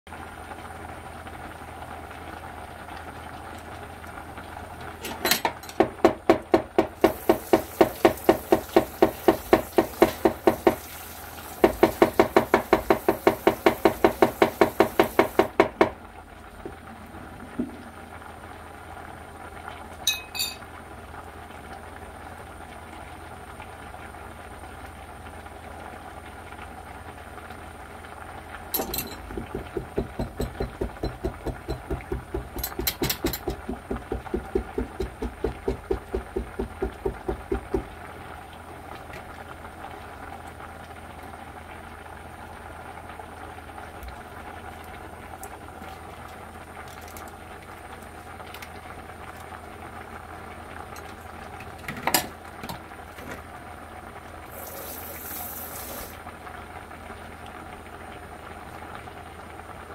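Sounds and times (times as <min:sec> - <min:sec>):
stew bubbling at a boil: 0:00.1 - 0:59.9
knife chopping on cutting board: 0:29.4 - 0:37.9.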